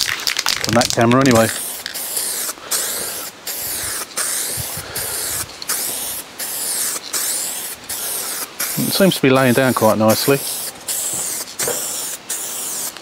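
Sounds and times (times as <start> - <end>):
paint spraying hiss: 0.0 - 13.0.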